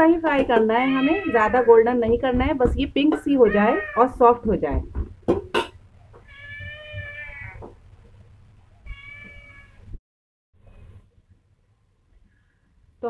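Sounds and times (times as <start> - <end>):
cat meowing: 0.9 - 1.7, 3.4 - 4.2, 6.2 - 7.7, 8.8 - 9.9.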